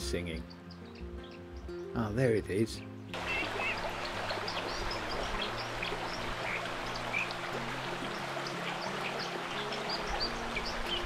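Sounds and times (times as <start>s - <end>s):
bird chirping: 0.0s - 11.0s
soft background music: 0.0s - 11.0s
stream rushing over rocks: 3.2s - 11.0s.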